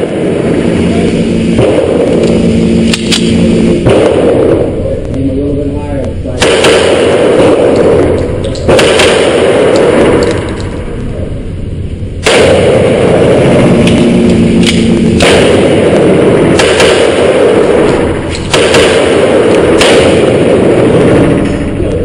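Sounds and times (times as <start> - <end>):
loud constant noise: 0.0 - 22.0
handgun shots: 1.6 - 4.6, 6.4 - 10.7, 12.2 - 15.9, 16.5 - 20.6.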